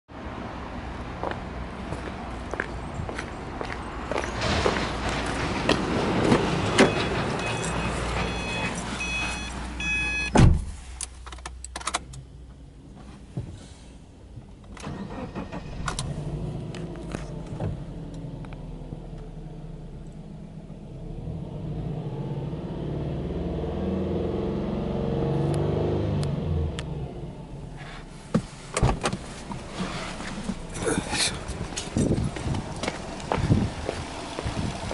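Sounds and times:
car door thump: 0:10.3 - 0:10.8, 0:28.3 - 0:29.2
car engine idling: 0:26.8 - 0:34.9.

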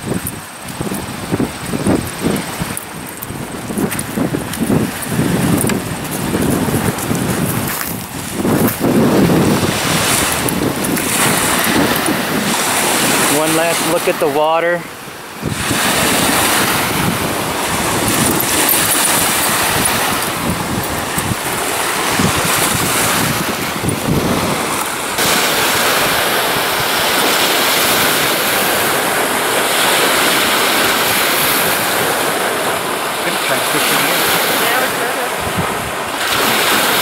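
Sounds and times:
waves washing onto sandy beach: 0:00.0 - 0:37.0
wind on microphone: 0:00.0 - 0:37.0.

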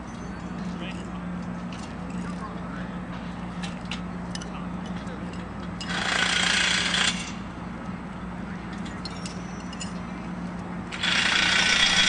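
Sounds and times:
light metal clinks: 0:08.7 - 0:10.2
handheld power tool running: 0:10.9 - 0:12.0.

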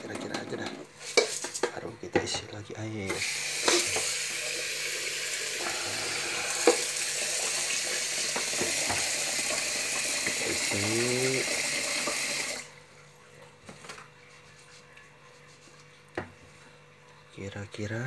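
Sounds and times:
tap water running into pot: 0:03.1 - 0:12.7.

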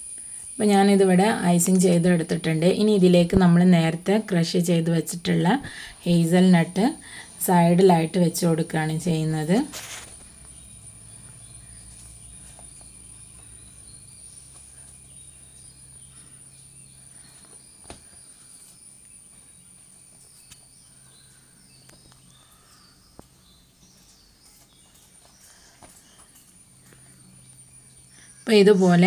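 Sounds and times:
low hum: 0:06.0 - 0:29.0.

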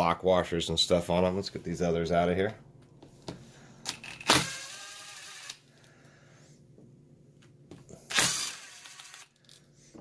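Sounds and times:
cordless drill whirring: 0:04.2 - 0:05.6, 0:08.1 - 0:09.5.

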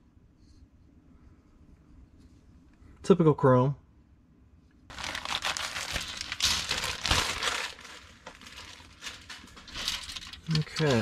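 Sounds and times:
plastic crinkling and rustling: 0:04.9 - 0:11.0.

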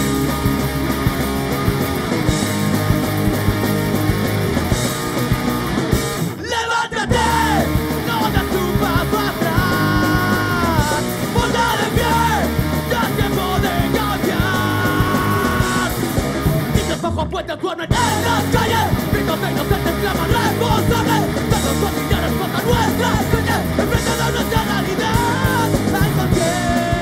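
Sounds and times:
punk rock band playing live: 0:00.0 - 0:27.0
person singing: 0:06.4 - 0:16.0, 0:16.8 - 0:27.0.

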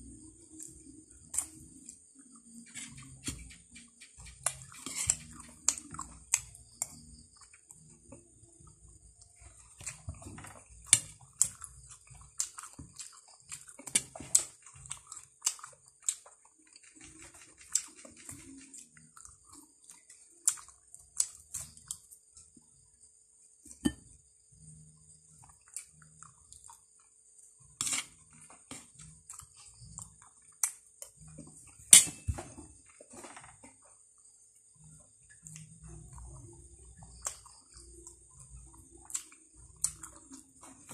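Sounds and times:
person chewing crunchy food: 0:00.0 - 0:22.8, 0:24.6 - 0:33.1, 0:33.7 - 0:40.9.

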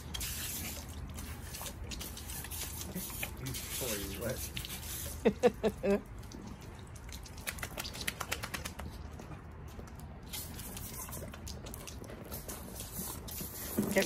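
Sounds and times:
hose nozzle spraying water: 0:00.0 - 0:05.4
dog lapping at water: 0:00.0 - 0:14.0.

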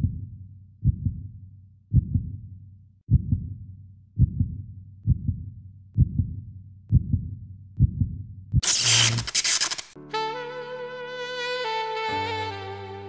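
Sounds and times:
heartbeat thumps: 0:00.0 - 0:02.4, 0:03.1 - 0:03.6, 0:04.2 - 0:08.6.

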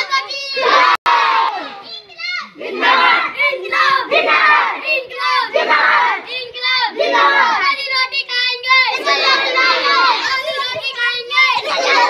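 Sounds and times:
children shouting together: 0:00.0 - 0:12.0.

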